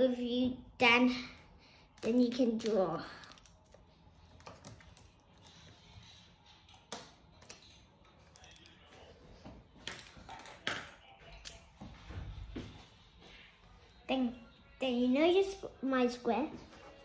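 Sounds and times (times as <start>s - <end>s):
plastic pens clicking: 1.9s - 5.6s.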